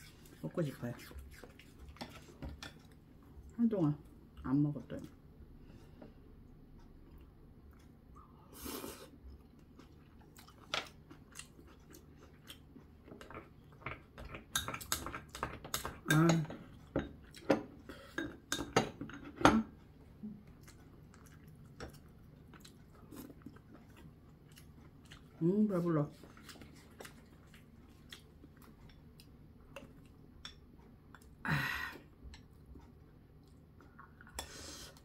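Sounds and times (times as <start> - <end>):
chewing: 9.1 - 15.8, 19.2 - 31.4, 32.4 - 35.0.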